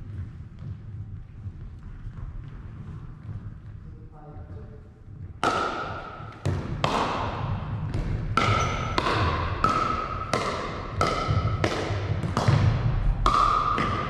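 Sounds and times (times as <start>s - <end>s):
paddles hitting plastic ball: 5.2s - 14.0s.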